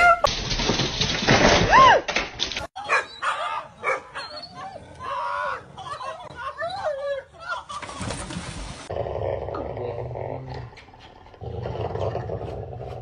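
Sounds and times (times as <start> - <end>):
dog yelping and whining: 3.2 - 4.9.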